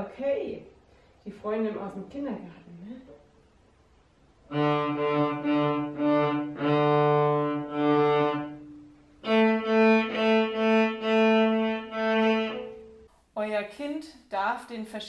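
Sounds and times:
cello bowed notes: 4.5 - 13.1.

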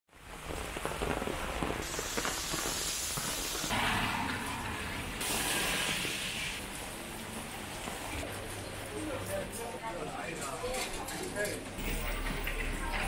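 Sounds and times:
rain hissing on wet street: 0.1 - 3.8, 5.0 - 8.3.

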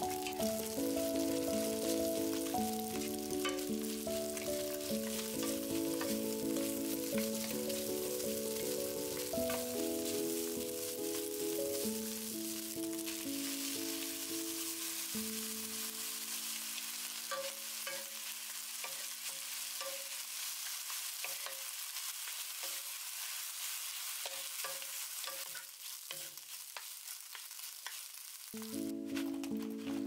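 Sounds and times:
food sizzling in a frying pan: 0.0 - 30.0
wooden spatulas scraping a pan: 18.8 - 28.1.

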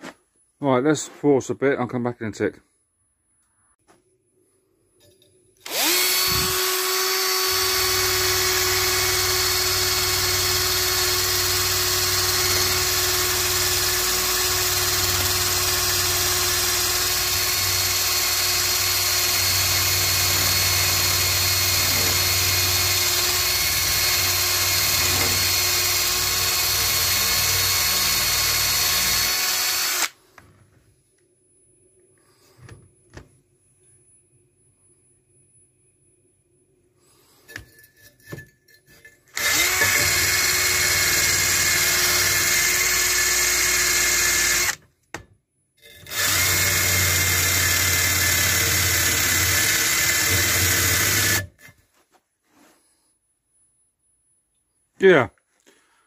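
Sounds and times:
drill with wire brush scrubbing metal: 5.6 - 30.2, 39.3 - 44.8, 45.8 - 51.7.

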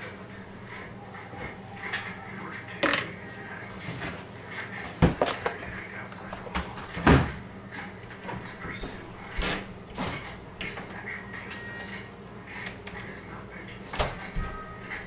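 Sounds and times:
kitchen items knocking: 2.8 - 3.2, 5.0 - 7.4.

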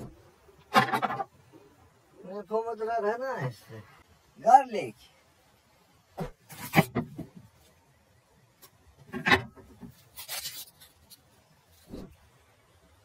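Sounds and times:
garlic skins crackling: 9.8 - 11.6.

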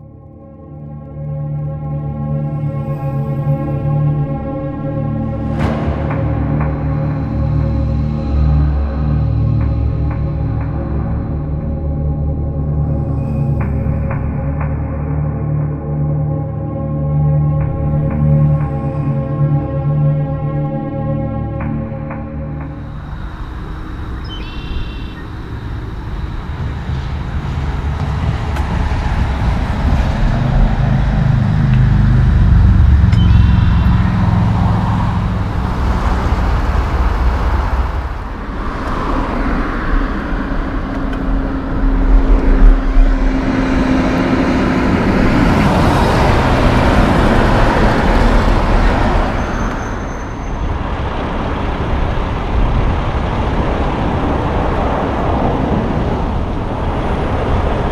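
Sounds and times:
cars and trucks passing: 1.3 - 57.9
heavy truck engine: 25.4 - 52.0.

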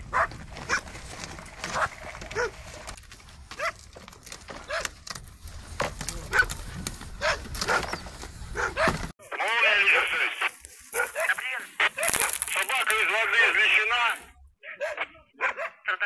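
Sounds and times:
large dog barking: 0.0 - 0.9, 1.7 - 2.6, 3.6 - 3.8, 4.6 - 5.0, 6.3 - 6.6, 7.2 - 9.1, 10.9 - 11.4, 14.7 - 15.9.

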